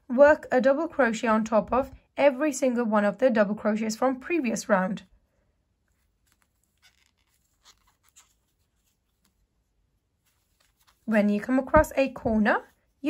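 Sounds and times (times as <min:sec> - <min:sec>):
yarn rustling on crochet hook: 0:05.8 - 0:13.0.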